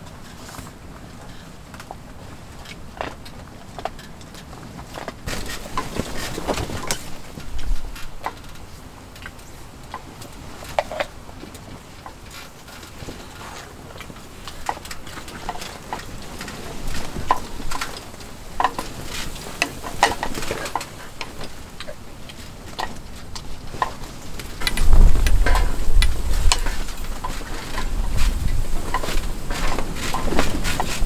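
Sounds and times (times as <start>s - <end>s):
strong wind rumble: 23.4s - 31.0s.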